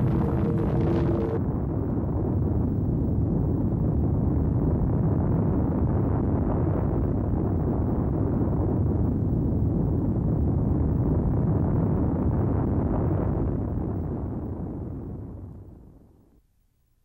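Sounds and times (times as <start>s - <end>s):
deep rumbling noise: 0.0s - 16.0s.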